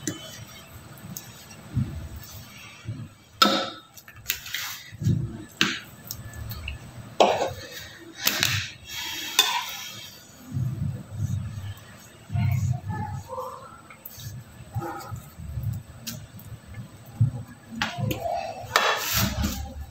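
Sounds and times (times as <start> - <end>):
metal spatula scraping glass bowl: 8.9 - 10.4.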